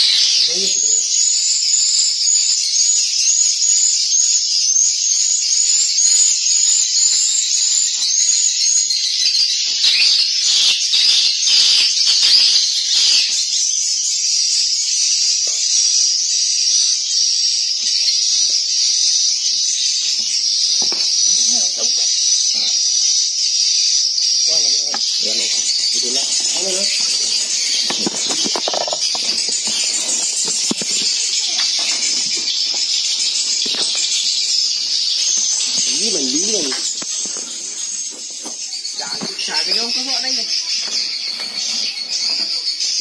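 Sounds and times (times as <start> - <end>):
swiftlets twittering: 24.5 - 38.1, 38.7 - 42.8.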